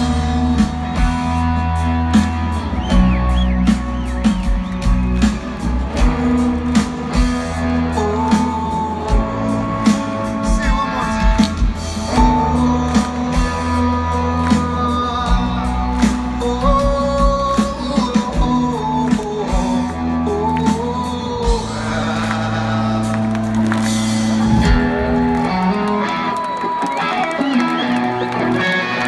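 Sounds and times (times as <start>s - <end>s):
bass and drums: 0.0s - 28.7s
voices singing: 20.7s - 23.5s
electric guitar lines with bends: 23.6s - 29.0s.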